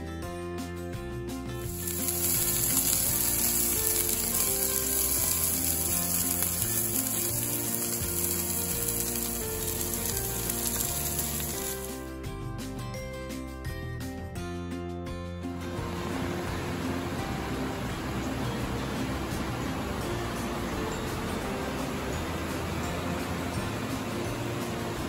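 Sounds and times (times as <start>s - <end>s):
steak sizzling in a skillet: 1.6s - 12.1s.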